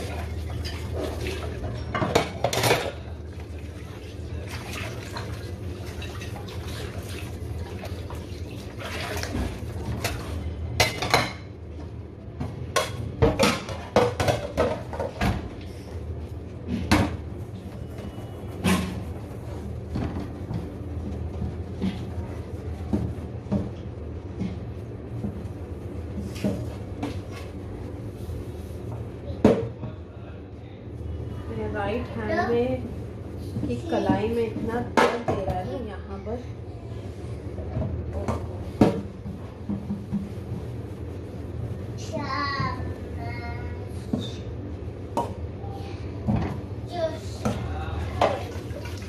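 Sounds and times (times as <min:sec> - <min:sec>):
dishes clinking in a sink: 0:00.0 - 0:03.2, 0:08.9 - 0:11.6, 0:12.4 - 0:15.4
tap water running: 0:00.0 - 0:10.5, 0:47.4 - 0:49.0.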